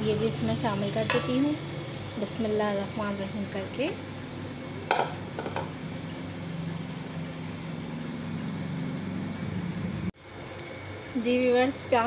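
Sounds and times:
onions frying in oil: 0.0 - 12.0
metal knock on pot: 4.9 - 5.7.

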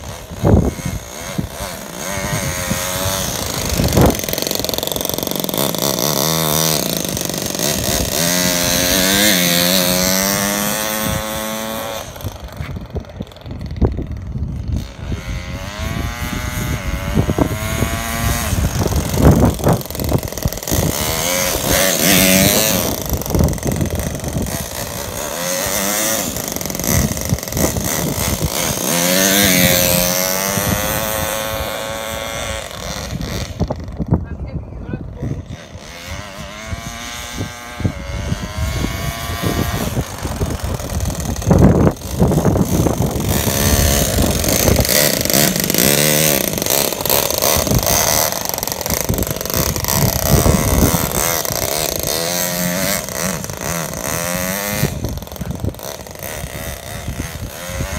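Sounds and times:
model engine revving: 0.0 - 57.9.

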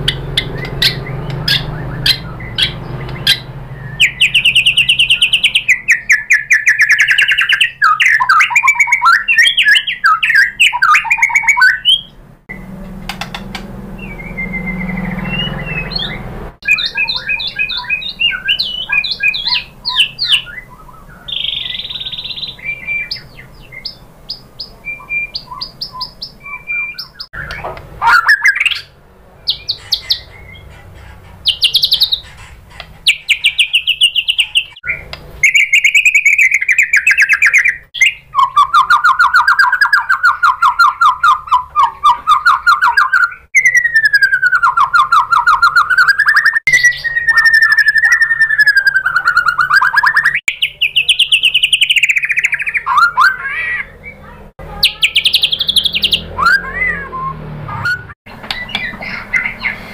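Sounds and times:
bird singing varied song: 0.0 - 59.9.

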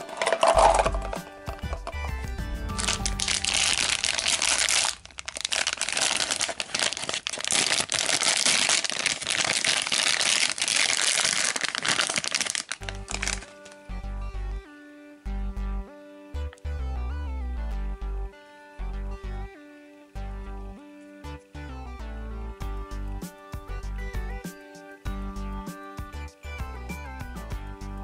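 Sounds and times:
foil bag crinkling and tearing: 0.0 - 1.9, 2.7 - 13.8
background music: 0.0 - 8.0, 11.8 - 28.0.

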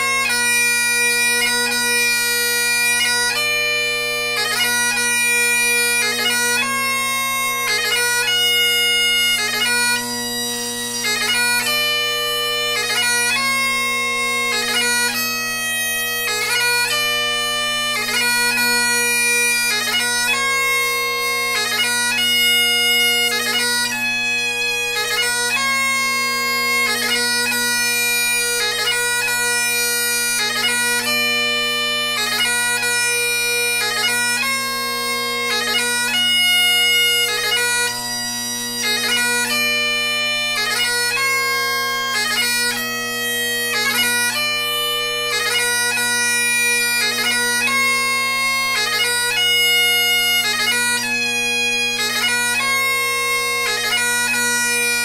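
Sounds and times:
bagpipe chanter melody: 0.0 - 55.0
bagpipe drones: 0.0 - 55.0.

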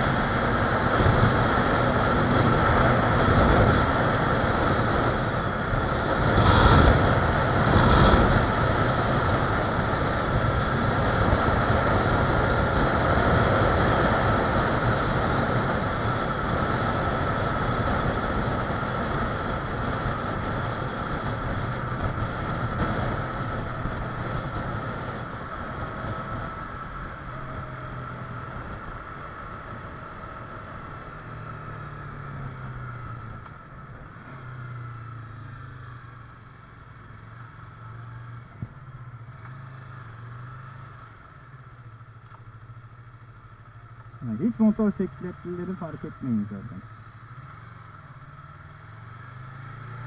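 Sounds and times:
wind roaring over microphone: 0.0 - 36.3
motorcycle engine running: 0.0 - 50.0.

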